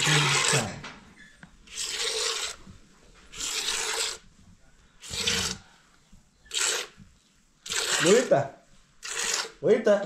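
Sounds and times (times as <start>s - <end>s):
milk squirting into plastic cup: 0.0s - 0.8s, 1.7s - 2.7s, 3.3s - 4.2s, 5.0s - 5.6s, 6.4s - 7.0s, 7.6s - 8.4s, 9.0s - 9.6s.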